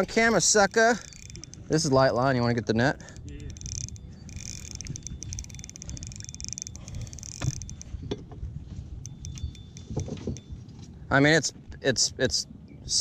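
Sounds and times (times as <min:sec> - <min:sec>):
fishing reel clicks: 0:00.0 - 0:02.3, 0:03.0 - 0:08.0, 0:09.0 - 0:10.5
fishing reel whirring: 0:00.0 - 0:02.4, 0:03.0 - 0:08.1, 0:09.0 - 0:10.5.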